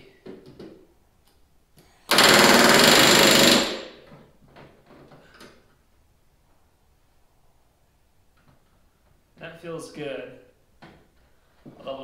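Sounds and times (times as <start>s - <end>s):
pneumatic rivet gun hammering: 2.1s - 4.0s.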